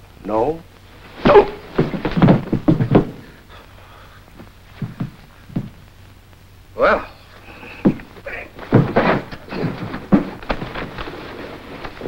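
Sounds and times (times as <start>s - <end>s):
faint steady hum: 0.0s - 12.0s
dull thumps on carpeted floor: 1.2s - 3.4s, 4.8s - 5.8s.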